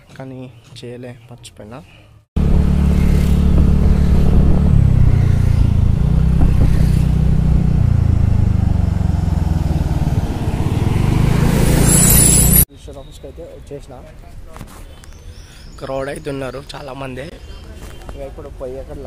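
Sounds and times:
motor scooter engine running: 2.4 - 12.6
wind and road noise: 2.4 - 12.7.

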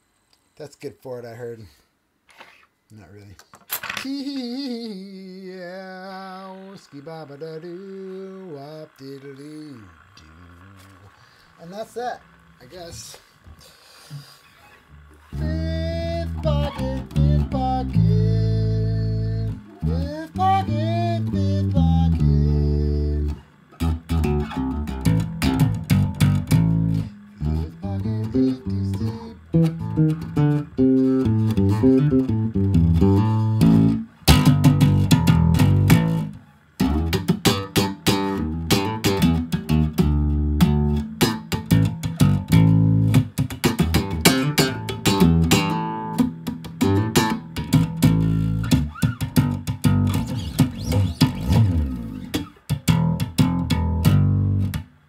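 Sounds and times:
bass line: 4.2 - 14.2, 14.8 - 55.0
plucked guitar music: 14.9 - 55.0.

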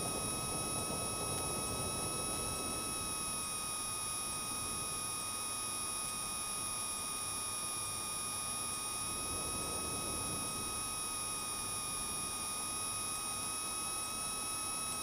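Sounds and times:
muffled airplane cabin drone: 0.0 - 5.0, 8.4 - 13.2
high-pitched whine: 8.2 - 13.0.

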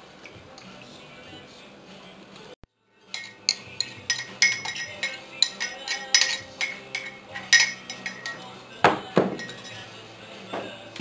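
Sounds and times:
metal spoon clinking on bowl: 3.1 - 8.5, 9.4 - 9.9.

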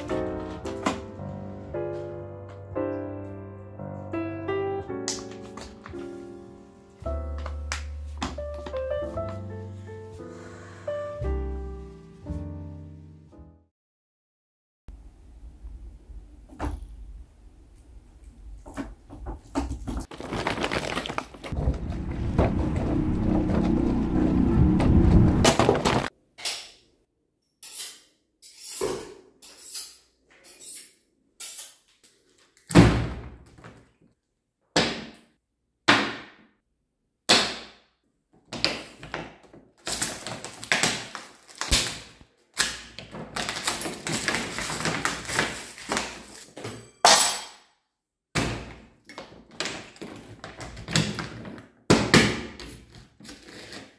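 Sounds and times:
plastic bottle crackling and popping: 19.7 - 21.8, 39.8 - 46.3.

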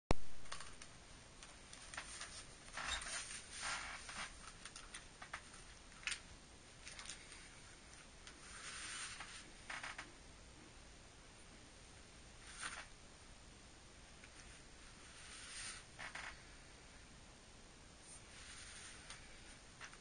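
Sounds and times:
laces rustling and scraping: 1.4 - 6.2, 6.8 - 10.1, 12.4 - 13.0, 14.2 - 16.4.

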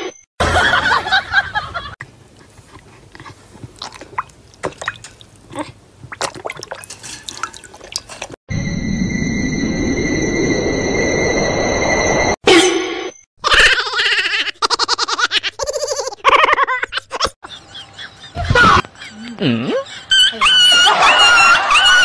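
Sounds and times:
water splashing in tub: 3.8 - 5.4, 6.1 - 8.4.

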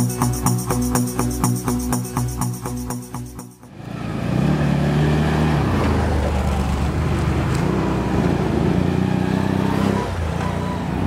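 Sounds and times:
quad bike engines revving: 3.7 - 11.0.

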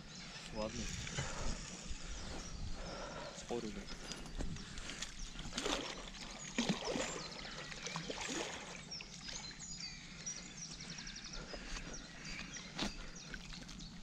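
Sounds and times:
fish splashing in water: 5.4 - 9.4.

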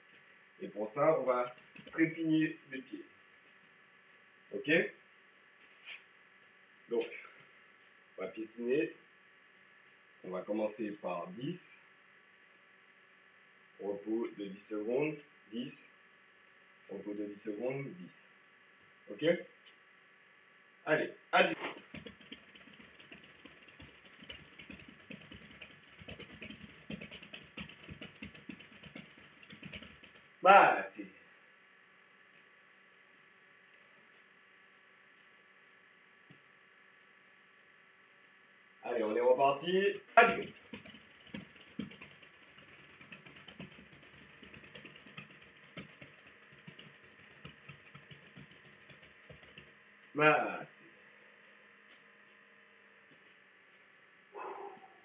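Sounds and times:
feet stamping on a floor: 21.5 - 30.4, 40.1 - 49.8.

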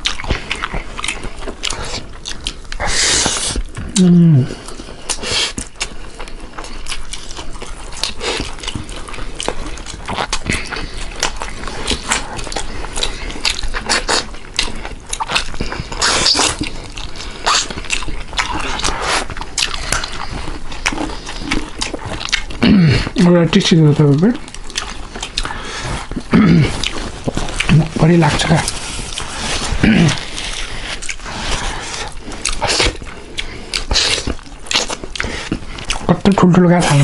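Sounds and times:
wet chewing and lip-smacking: 0.0 - 37.0
person humming mm: 3.8 - 4.7.

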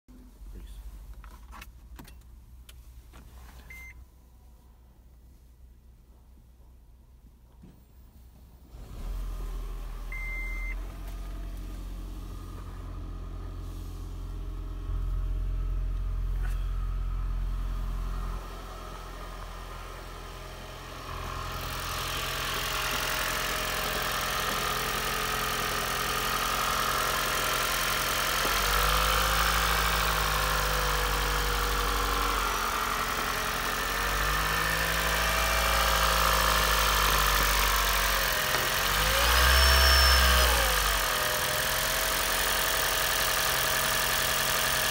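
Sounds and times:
car engine starting and running: 0.1 - 44.9
short beep: 3.7 - 4.0, 10.1 - 10.8.

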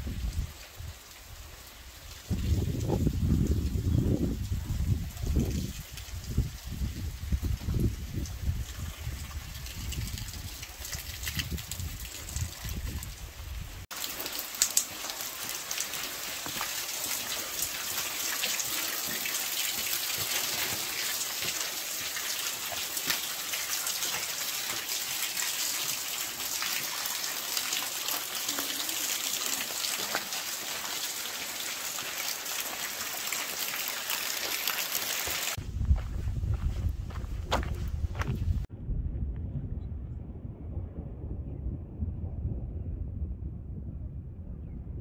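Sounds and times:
steady rain falling: 0.0 - 35.6
low rumble: 35.6 - 45.0.

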